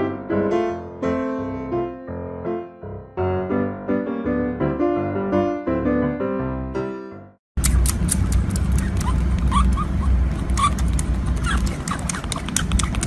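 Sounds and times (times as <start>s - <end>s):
baby animal suckling bottle: 7.6s - 13.0s.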